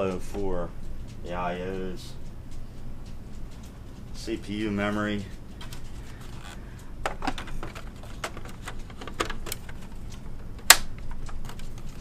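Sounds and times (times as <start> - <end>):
plastic clicks and knocks: 7.0 - 11.9
loud plastic snap: 10.6 - 11.5.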